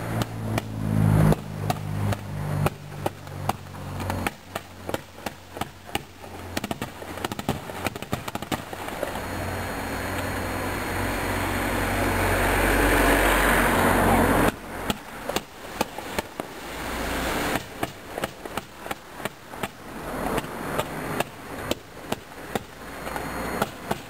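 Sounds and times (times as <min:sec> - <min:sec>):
ground fireworks bangs: 0:00.0 - 0:09.0
fireworks crackling: 0:00.0 - 0:24.0
fireworks hissing: 0:00.0 - 0:24.0.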